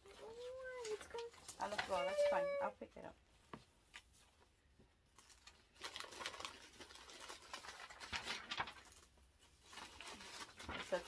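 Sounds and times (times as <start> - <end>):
paper packaging rustling: 0.0 - 2.8, 5.1 - 11.0.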